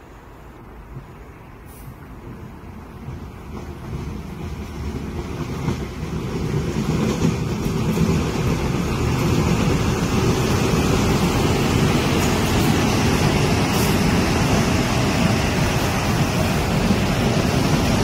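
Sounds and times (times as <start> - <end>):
wheels hissing on rail: 0.0 - 18.0
electric train passing: 1.9 - 18.0.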